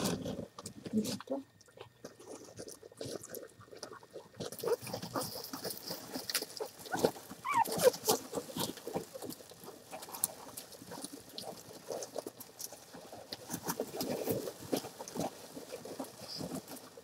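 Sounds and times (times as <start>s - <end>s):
puppies squeaking and grunting: 3.8s - 9.3s.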